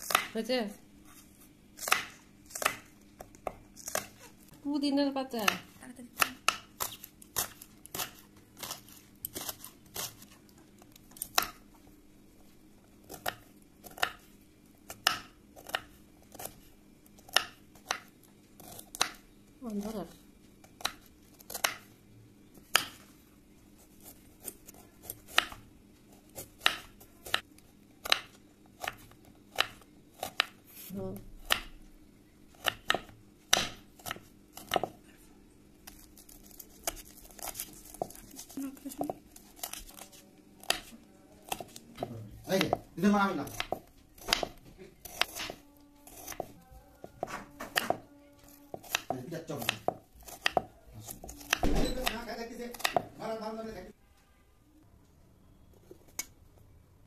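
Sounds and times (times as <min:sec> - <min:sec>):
knife chopping on wooden board: 0:00.0 - 0:00.3, 0:01.8 - 0:04.2, 0:05.4 - 0:10.3, 0:13.1 - 0:14.3, 0:24.0 - 0:25.6, 0:26.3 - 0:30.6, 0:32.6 - 0:35.0, 0:36.8 - 0:38.4, 0:41.5 - 0:48.0, 0:48.7 - 0:53.2.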